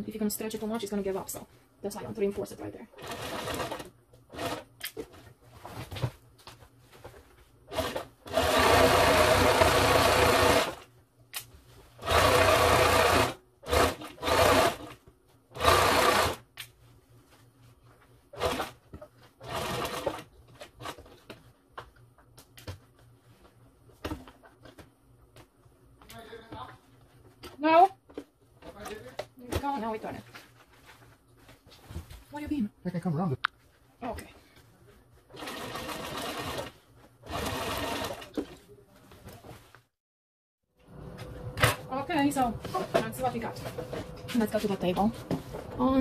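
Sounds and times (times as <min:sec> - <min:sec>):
sewing machine stitching: 0:02.9 - 0:05.1, 0:07.7 - 0:10.8, 0:12.0 - 0:16.4, 0:18.4 - 0:18.8, 0:19.4 - 0:21.0, 0:35.3 - 0:38.6.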